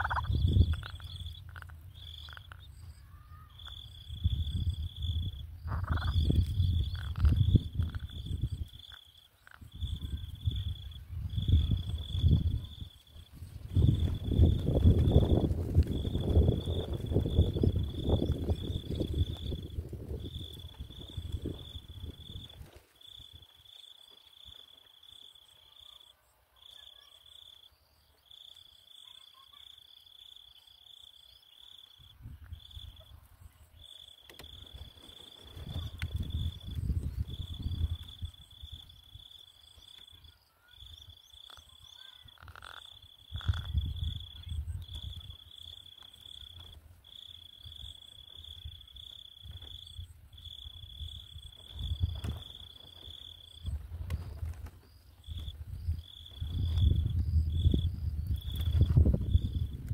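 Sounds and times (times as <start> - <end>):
insect trilling: 0.0 - 13.1, 13.8 - 33.2, 33.8 - 59.8.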